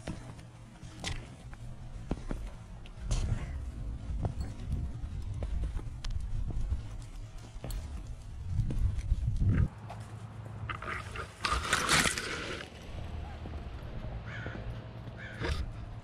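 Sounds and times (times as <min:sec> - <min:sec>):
wind on microphone: 0:07.8 - 0:09.7
palm fronds scraping camera housing: 0:10.7 - 0:12.8.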